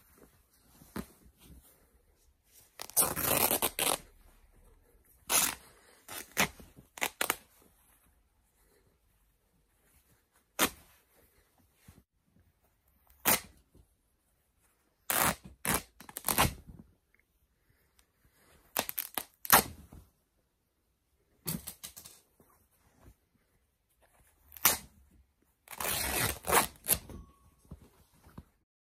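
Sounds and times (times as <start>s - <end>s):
fabric tearing: 2.8s - 4.1s, 5.2s - 7.5s, 13.1s - 13.6s, 15.1s - 16.6s, 18.8s - 19.8s, 24.5s - 25.0s, 25.6s - 27.0s.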